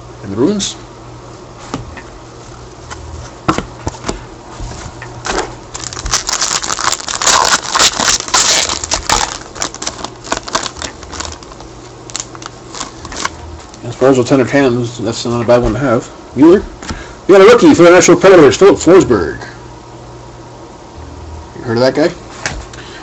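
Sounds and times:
packaging crinkling: 5.2s - 13.9s.

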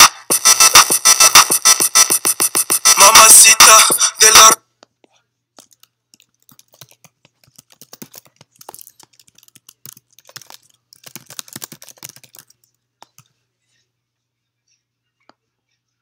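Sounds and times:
fast typing on keyboard: 0.0s - 3.2s, 5.6s - 13.3s.

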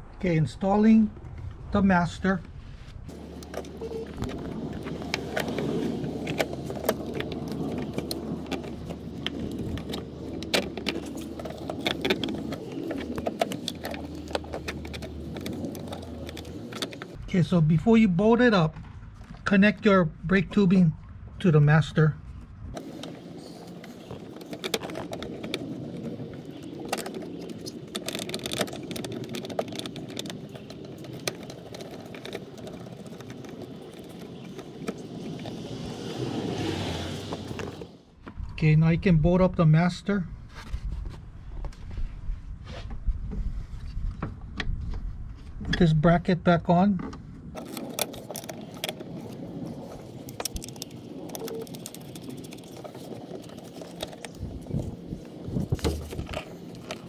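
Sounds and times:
low background rumble: 0.0s - 36.6s.

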